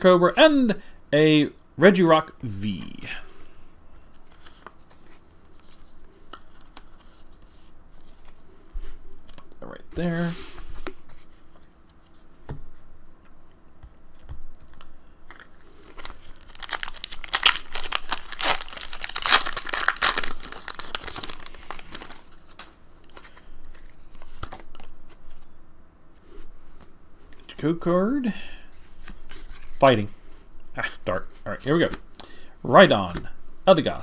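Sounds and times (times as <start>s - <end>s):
cards rustling: 4.0s - 12.6s, 14.2s - 25.5s
foil pack crinkling and tearing: 15.3s - 23.4s.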